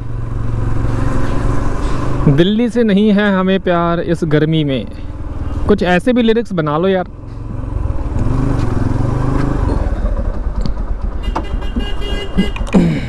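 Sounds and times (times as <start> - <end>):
motorcycle engine running: 0.0 - 13.0
street noise: 0.0 - 13.0
vehicle horn: 11.2 - 12.8.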